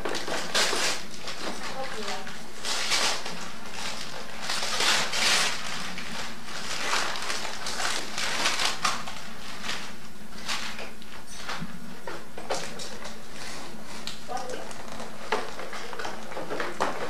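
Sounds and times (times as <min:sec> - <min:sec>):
wrapping paper rustling and tearing: 0:00.0 - 0:11.6.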